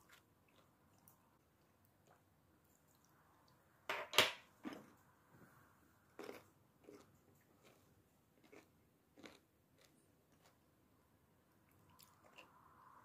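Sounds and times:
crunchy chewing: 0:06.2 - 0:10.6, 0:11.7 - 0:12.6
pickle crunching bite: 0:08.4 - 0:10.5.

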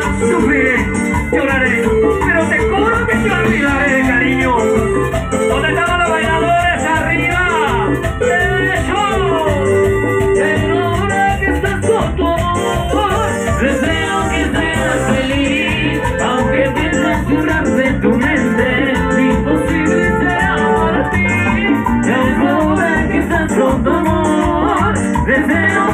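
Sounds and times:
live latin dance music: 0:00.0 - 0:25.9
person singing: 0:00.0 - 0:25.9.

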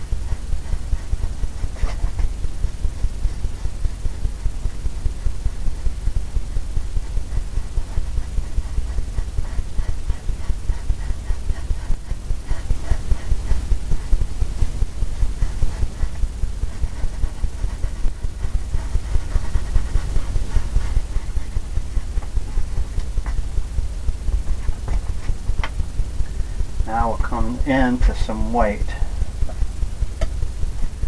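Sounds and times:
brush scrubbing on canvas: 0:00.0 - 0:23.4.

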